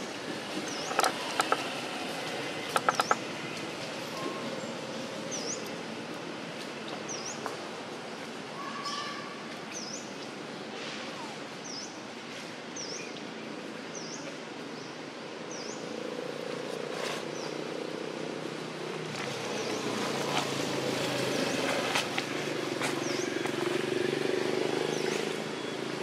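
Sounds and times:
vehicle engine hum: 0.0 - 6.2
outdoor ambience: 0.0 - 26.0
bird chirping: 2.7 - 3.3.

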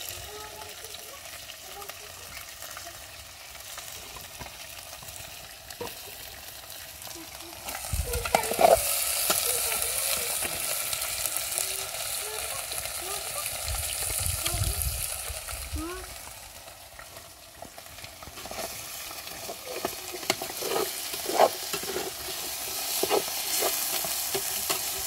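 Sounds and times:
potatoes sizzling in oil: 0.0 - 25.0
metal spoon scraping pot: 8.2 - 9.0, 18.4 - 25.0.

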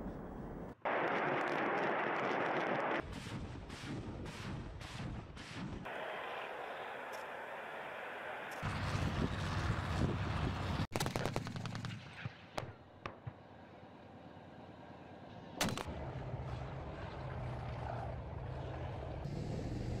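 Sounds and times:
armoured vehicle engines rumbling: 5.9 - 10.9, 11.9 - 20.0.

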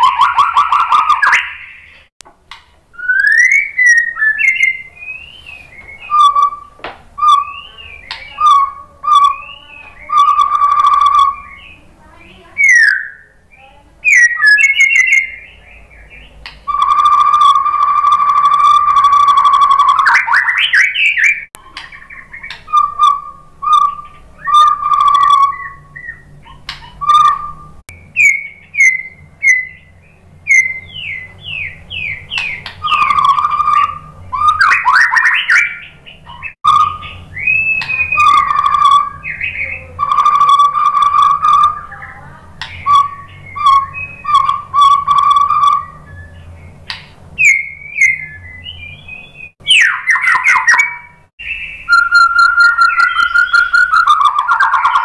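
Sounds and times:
bird singing whistles: 0.0 - 2.1, 2.9 - 11.8, 12.4 - 46.8, 47.4 - 55.0.

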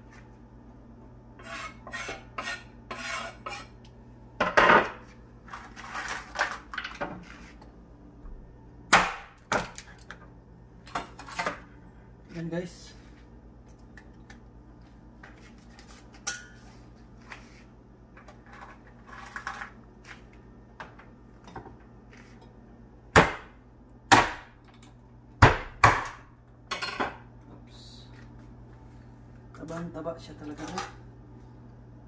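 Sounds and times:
knife chopping crabs: 23.1 - 24.6.

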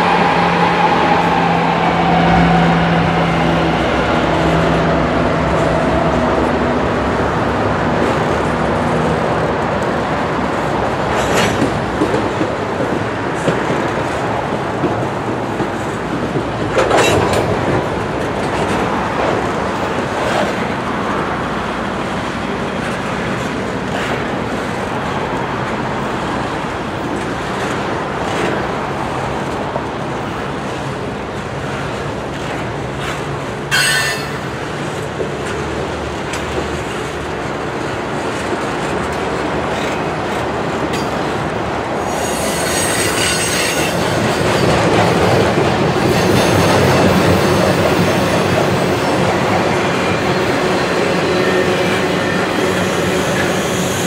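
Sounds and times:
train wheels rolling on rails: 0.0 - 54.0
wheel screech: 33.7 - 34.4, 42.0 - 44.0
high wheel squeal: 33.7 - 34.5, 42.0 - 44.0, 49.9 - 54.0.

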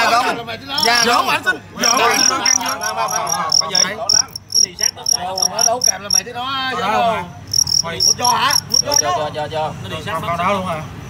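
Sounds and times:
crickets chirping: 0.7 - 6.4, 7.3 - 9.3.

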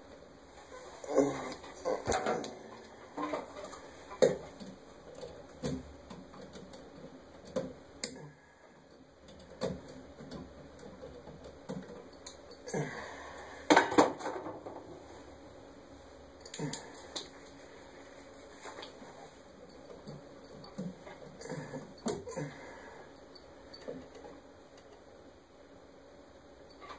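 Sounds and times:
clicks and rattles of wiring: 1.5 - 8.2.

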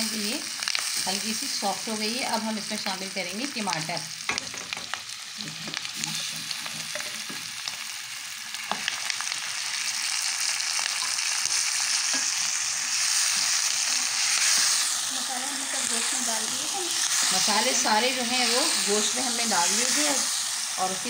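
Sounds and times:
onions and tomatoes sizzling: 0.0 - 21.0
spoon stirring and knocking pan: 4.2 - 7.5.

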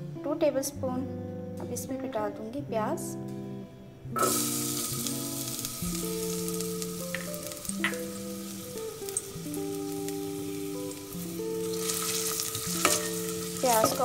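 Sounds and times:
onions sizzling in hot oil: 4.2 - 14.0.

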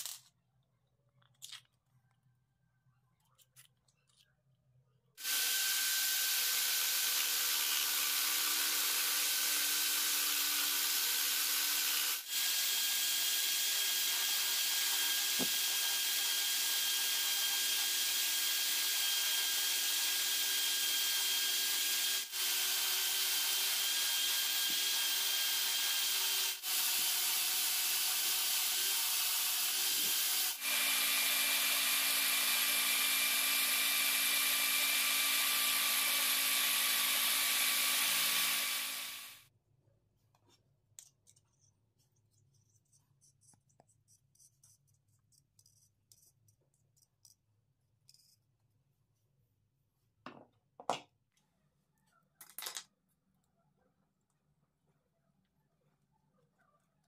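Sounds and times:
electric drill motor whine: 5.2 - 39.4.

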